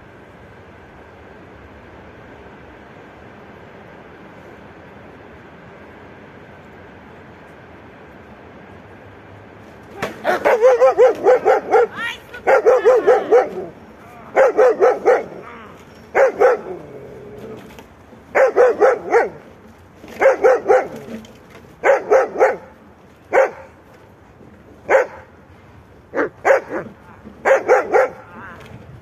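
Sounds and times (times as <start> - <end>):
dog barking: 10.2 - 13.7, 14.3 - 15.4, 16.1 - 16.8, 18.3 - 19.4, 20.2 - 21.0, 21.8 - 23.7, 24.9 - 25.3, 26.1 - 28.3.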